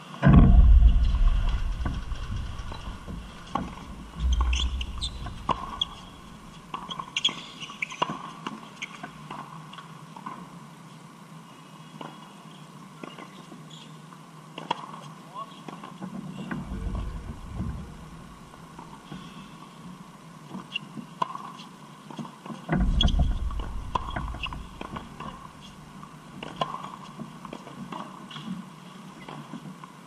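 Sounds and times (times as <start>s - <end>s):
wind rumble on microphone: 0.2s - 6.7s, 16.5s - 19.0s, 22.7s - 26.0s
ball bouncing: 0.3s - 6.2s
sneakers squeaking on court: 4.2s - 6.2s.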